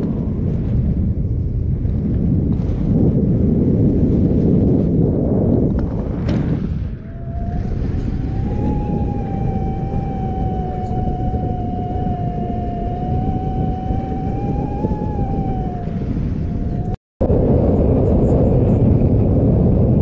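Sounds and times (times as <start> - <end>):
wind rushing over microphone: 0.0 - 20.0
steady wavering tone: 7.0 - 17.0.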